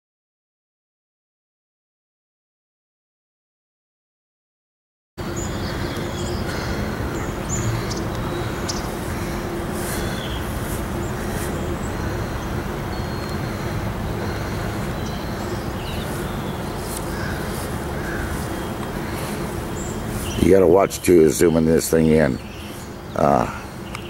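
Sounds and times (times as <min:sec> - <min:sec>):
distant traffic rumble: 0:05.2 - 0:24.0
faint steady hum: 0:05.2 - 0:24.0.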